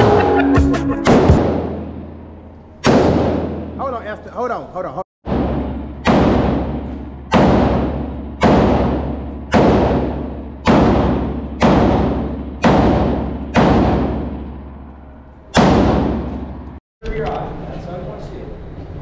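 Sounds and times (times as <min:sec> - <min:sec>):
gunshots with echo: 0:01.1 - 0:02.2, 0:02.8 - 0:04.0, 0:05.2 - 0:14.7, 0:15.5 - 0:16.8.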